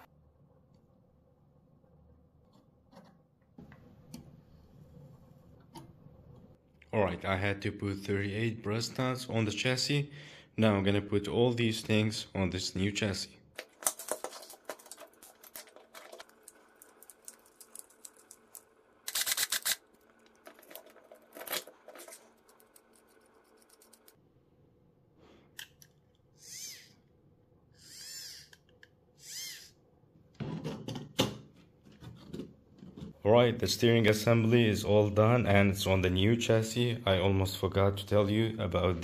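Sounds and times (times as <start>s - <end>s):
small parts clicking: 13.6s - 24.2s.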